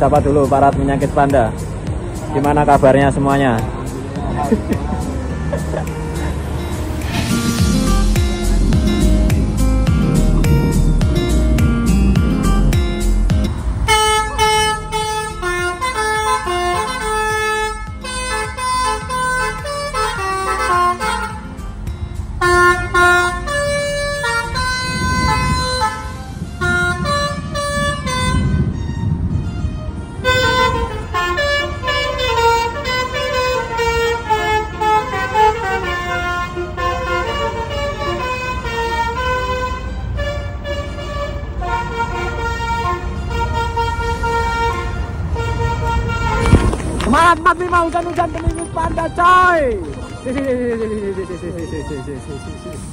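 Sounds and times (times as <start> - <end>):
multi-tone air horn melody: 6.6 - 46.8.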